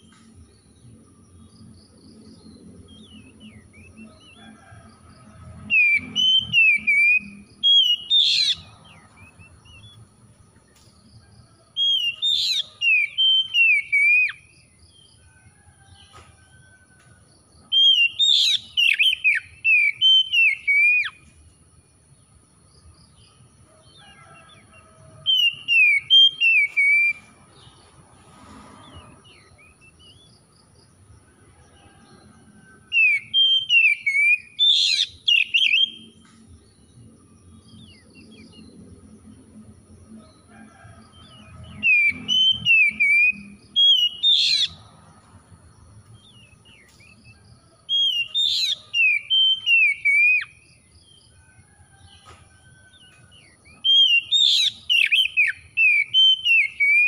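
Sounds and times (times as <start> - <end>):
bird singing warbled whistles: 5.8 - 8.6, 11.9 - 14.4, 17.8 - 21.2, 33.0 - 36.1, 41.9 - 44.8, 48.0 - 50.5, 53.9 - 57.0.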